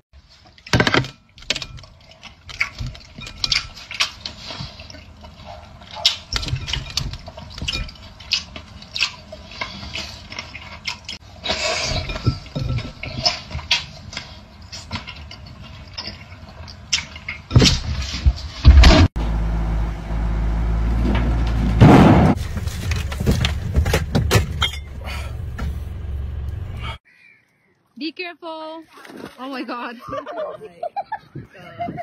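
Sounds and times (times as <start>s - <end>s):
wet chewing and mouth clicks: 1.4s - 17.5s.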